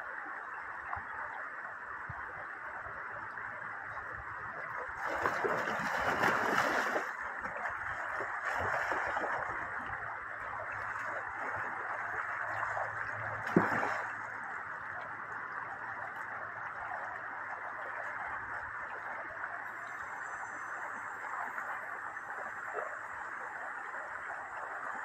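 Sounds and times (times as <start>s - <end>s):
river running over stones: 0.0s - 19.7s
dogs splashing through water: 4.9s - 14.6s
loud sharp splash: 5.0s - 7.1s, 13.4s - 14.2s.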